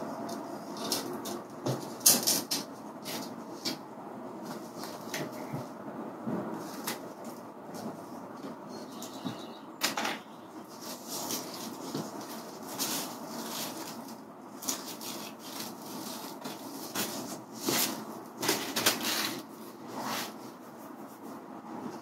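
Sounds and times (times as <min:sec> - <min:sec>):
screen mesh rustling and crinkling: 0:06.4 - 0:20.4.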